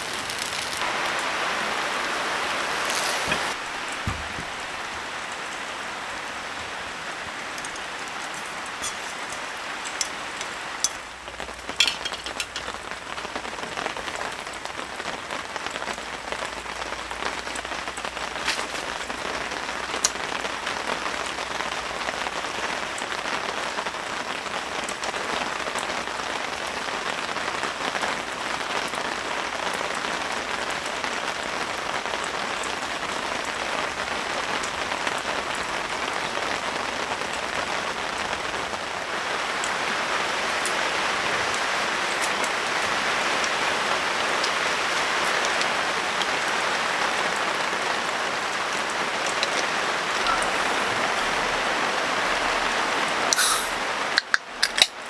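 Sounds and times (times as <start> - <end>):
single raindrops: 0.0 - 14.7, 47.3 - 55.0
rain on tent canopy: 0.0 - 55.0.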